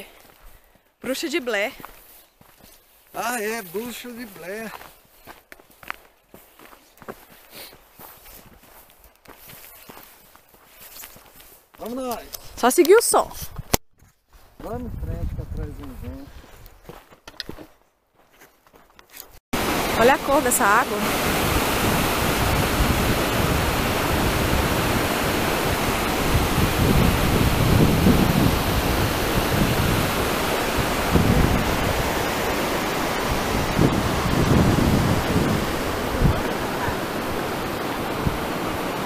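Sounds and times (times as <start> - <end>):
low rumbling water surges: 19.6 - 39.0
waterfall rushing: 19.6 - 39.0.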